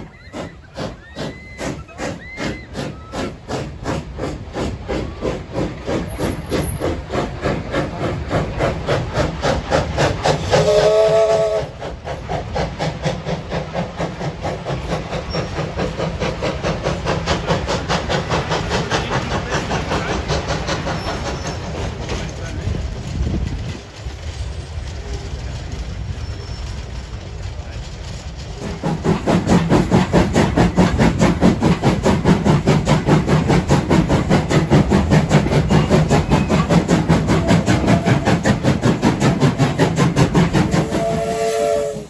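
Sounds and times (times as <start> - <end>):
steam locomotive exhaust chuffs: 0.0 - 42.0
steam locomotive whistle blast: 10.4 - 11.8, 37.3 - 38.4, 40.6 - 42.0.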